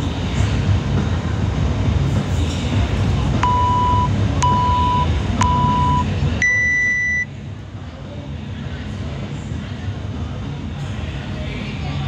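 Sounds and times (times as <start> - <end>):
countdown timer beeps: 3.4 - 7.3
long high-pitched beep: 3.4 - 7.3.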